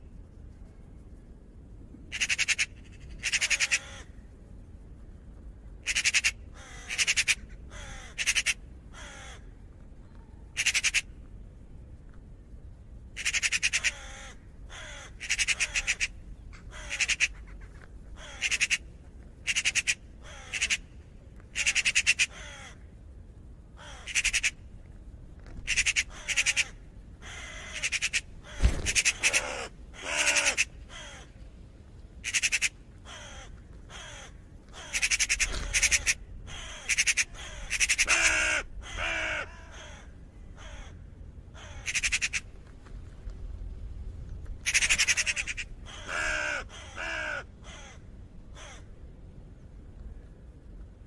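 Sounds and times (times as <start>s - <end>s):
raven cawing: 2.1s - 4.3s, 5.8s - 11.2s, 13.2s - 23.0s, 23.8s - 24.7s, 25.6s - 31.4s, 32.2s - 42.6s, 44.6s - 49.0s.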